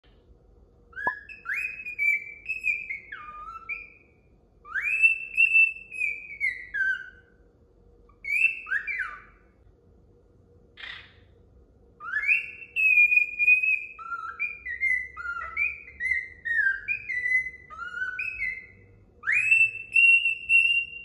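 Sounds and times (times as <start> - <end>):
cockatiel whistling: 0.9 - 7.4, 8.2 - 9.4, 12.0 - 21.0.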